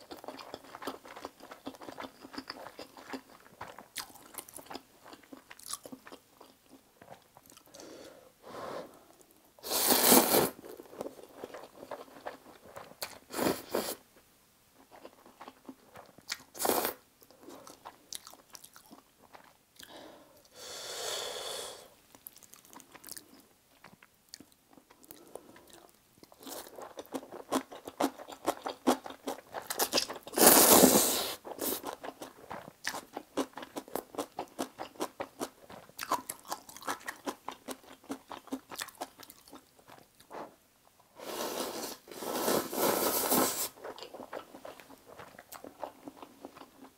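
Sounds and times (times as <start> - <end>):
wet chewing: 0.0 - 7.8, 31.4 - 40.4, 43.6 - 46.9
slurping noodles: 9.6 - 10.6, 29.8 - 32.0, 41.2 - 44.2.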